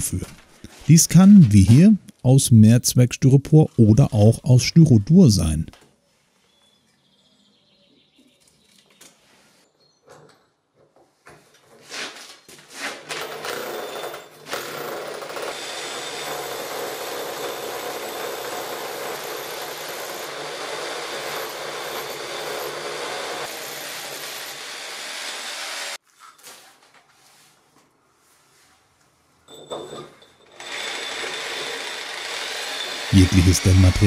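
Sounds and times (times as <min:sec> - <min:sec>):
rotary hammer drilling into concrete: 0:13.0 - 0:26.0, 0:30.5 - 0:34.0.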